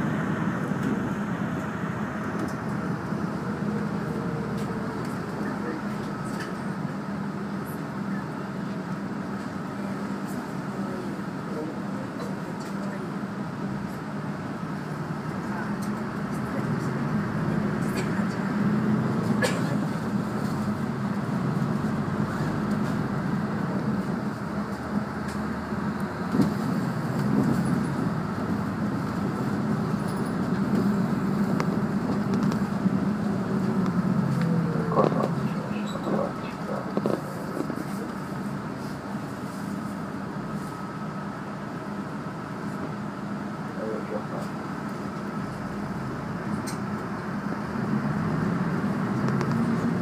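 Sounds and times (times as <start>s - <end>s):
bus engine drone: 0.0s - 50.0s
road and tyre noise: 0.0s - 50.0s.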